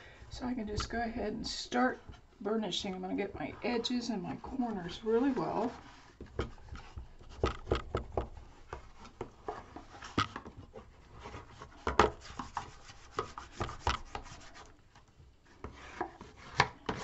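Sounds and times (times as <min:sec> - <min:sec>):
bone folder scraping paper: 0:03.5 - 0:14.8, 0:15.5 - 0:17.0
small knocks: 0:06.2 - 0:10.6.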